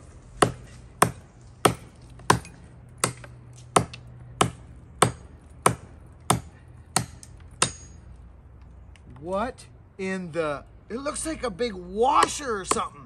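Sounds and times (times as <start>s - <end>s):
hatchet chopping wood: 0.4s - 8.0s, 12.1s - 13.0s.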